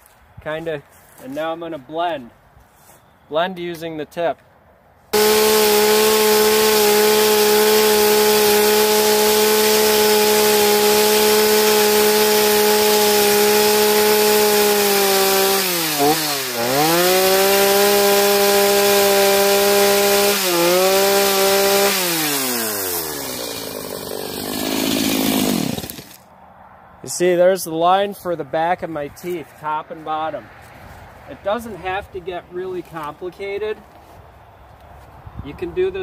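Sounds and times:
chainsaw cutting wood: 0:05.1 - 0:26.3.

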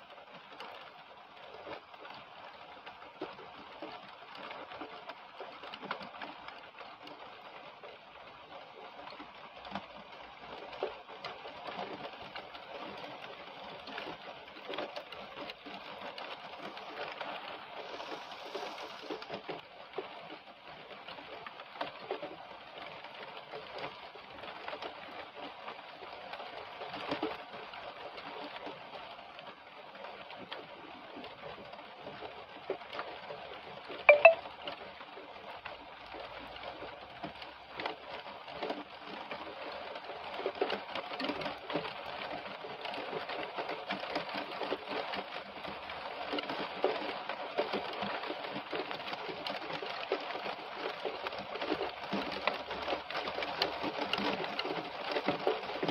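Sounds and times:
heavy rain on branches: 0:00.0 - 0:55.9.

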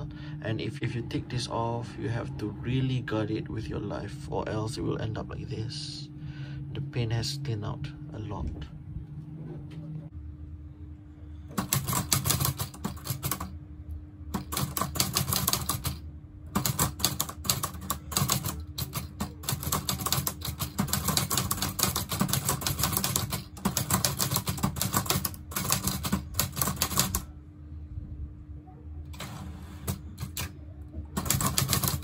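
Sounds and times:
manual typewriter key strikes: 0:14.4 - 0:16.0, 0:31.2 - 0:32.0.

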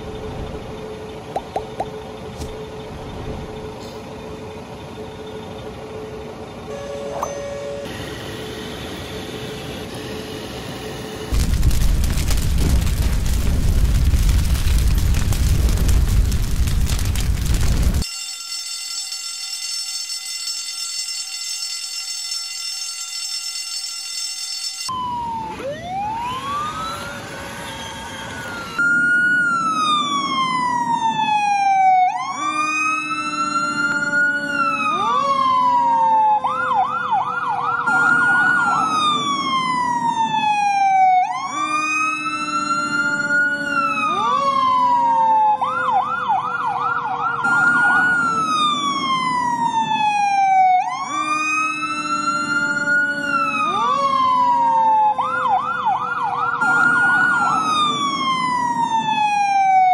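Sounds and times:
electronic fire truck siren: 0:16.9 - 0:59.9.

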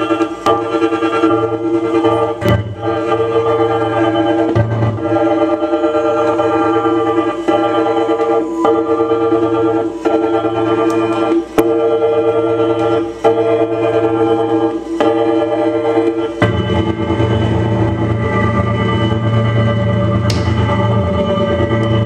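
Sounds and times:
experimental guitar and saxophone music: 0:00.0 - 0:22.0
sharp click: 0:20.3 - 0:20.6.

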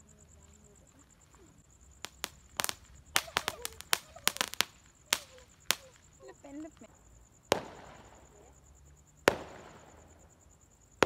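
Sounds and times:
firecracker pops and cracks: 0:02.0 - 0:06.2, 0:07.5 - 0:08.3, 0:09.2 - 0:10.2.

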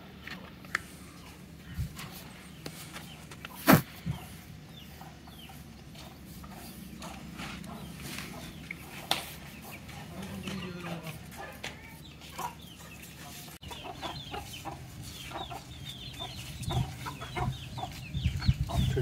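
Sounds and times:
chickens clucking: 0:00.3 - 0:19.0.

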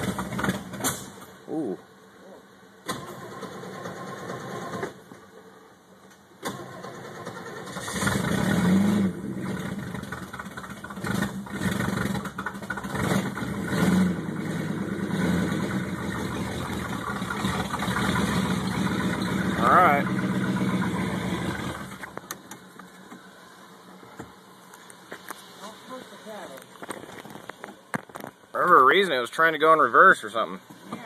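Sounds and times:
car engine cranking: 0:00.0 - 0:01.4, 0:02.8 - 0:05.2, 0:06.4 - 0:23.2
car engine running and revving: 0:07.7 - 0:22.5.

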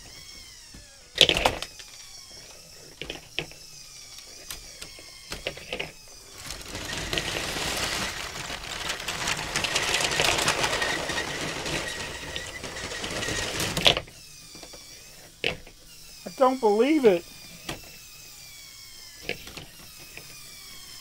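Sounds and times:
toy train motor whining: 0:00.0 - 0:21.0
toy train wheels clicking: 0:01.2 - 0:18.0
fast clattering toy gearbox: 0:01.2 - 0:18.1.

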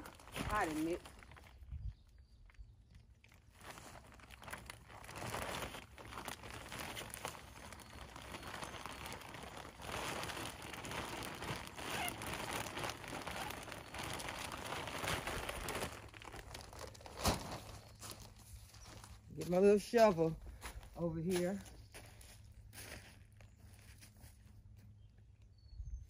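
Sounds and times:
plastic bag crinkling: 0:00.0 - 0:02.2, 0:03.1 - 0:19.2.

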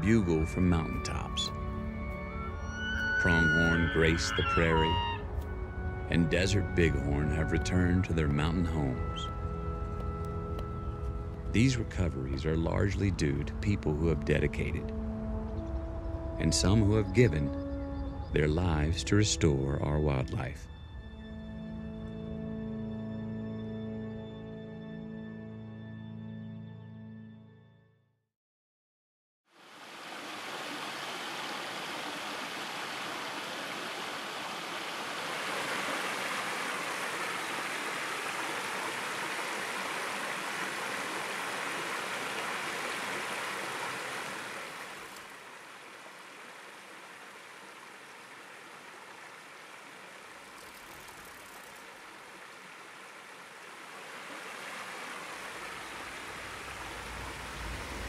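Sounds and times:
stream water rushing: 0:00.0 - 0:07.6, 0:29.5 - 0:58.0.

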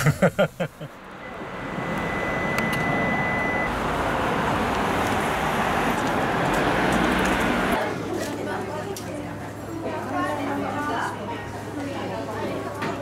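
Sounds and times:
road traffic rushing: 0:00.0 - 0:07.9
thin high steady tone: 0:00.8 - 0:03.7.

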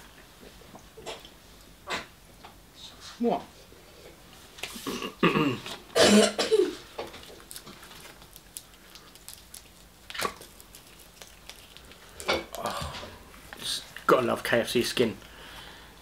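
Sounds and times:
man coughing: 0:04.9 - 0:06.8.

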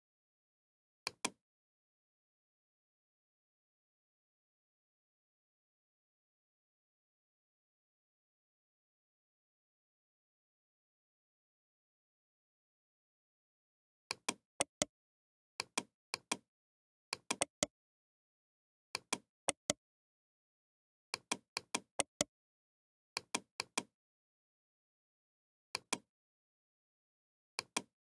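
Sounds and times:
computer clicks: 0:14.6 - 0:14.9, 0:17.3 - 0:17.7, 0:19.5 - 0:19.8, 0:22.0 - 0:22.3.

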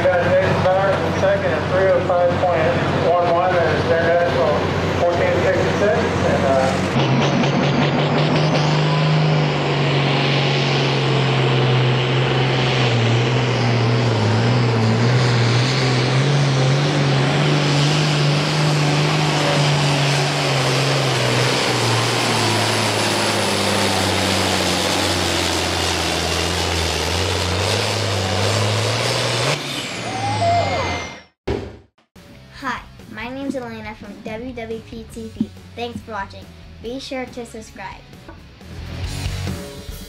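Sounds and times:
tractor engine at full throttle: 0:00.0 - 0:31.7.

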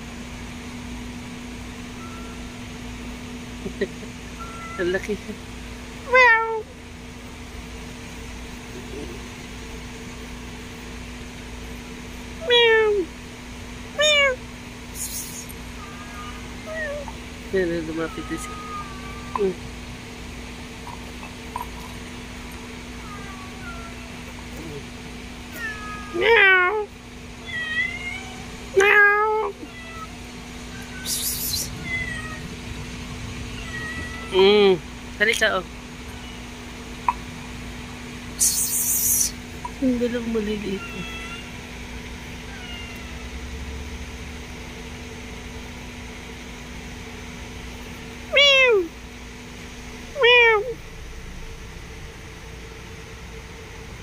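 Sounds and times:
mechanical hum and hiss: 0:00.0 - 0:54.0
cat meowing: 0:04.4 - 0:05.0, 0:06.1 - 0:06.7, 0:12.4 - 0:13.1, 0:14.0 - 0:14.4, 0:15.2 - 0:17.2, 0:17.8 - 0:19.7, 0:22.6 - 0:24.4, 0:25.5 - 0:32.5, 0:33.5 - 0:34.6, 0:40.8 - 0:41.6, 0:42.4 - 0:43.4, 0:48.3 - 0:49.0, 0:50.2 - 0:50.8.

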